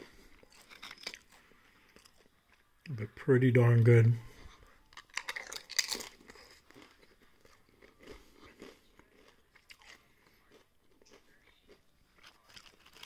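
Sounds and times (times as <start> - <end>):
person chewing chips: 0.0 - 2.8, 4.6 - 13.0.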